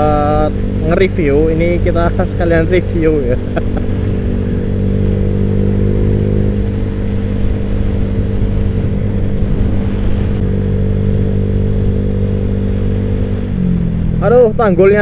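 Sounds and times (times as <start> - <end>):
scooter engine cruising: 0.0 - 15.0.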